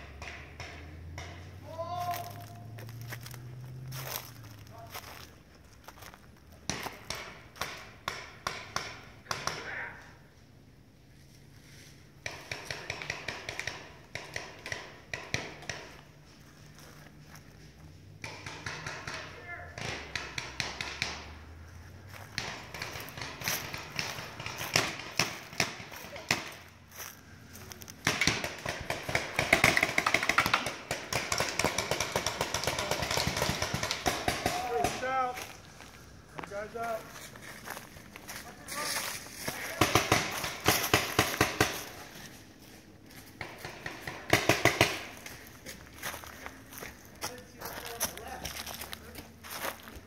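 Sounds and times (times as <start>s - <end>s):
paintball markers firing: 12.2s - 15.9s, 28.0s - 35.2s, 39.5s - 42.4s, 43.4s - 45.5s.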